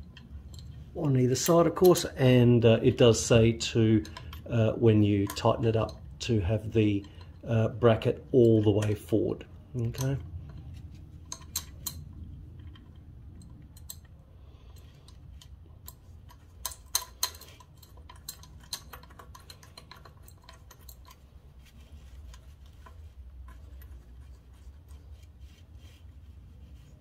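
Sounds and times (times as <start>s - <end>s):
faint low hum: 0.0s - 27.0s
small metallic clicks and taps: 4.0s - 4.5s, 5.2s - 6.2s, 6.9s - 7.5s, 9.8s - 25.3s.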